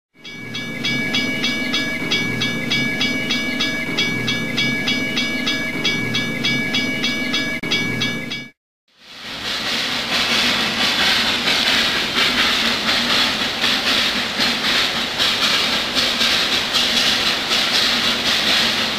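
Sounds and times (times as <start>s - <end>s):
steady high-pitched tones: 0.2s - 8.6s
train wheels clicking: 0.2s - 18.9s.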